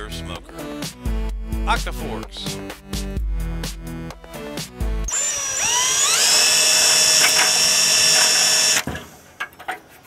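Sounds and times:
cordless drill drilling into steel: 0:05.1 - 0:08.9.

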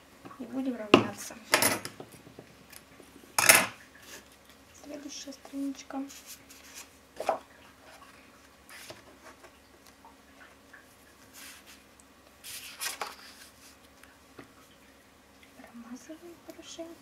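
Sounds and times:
hands rubbing paper: 0:06.0 - 0:06.9, 0:11.3 - 0:11.8, 0:12.4 - 0:13.8.

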